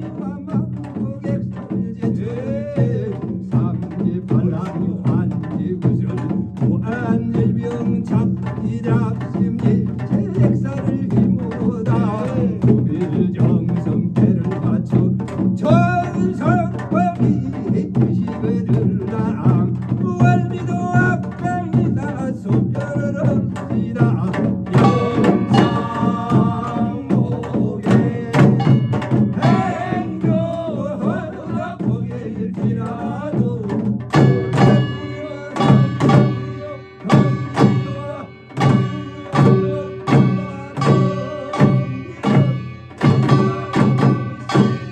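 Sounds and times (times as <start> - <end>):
drumming on barrel drums: 0.0 - 44.9
man singing a chant: 0.0 - 44.9
held ringing tones: 24.8 - 27.2, 28.6 - 30.3, 34.1 - 44.9.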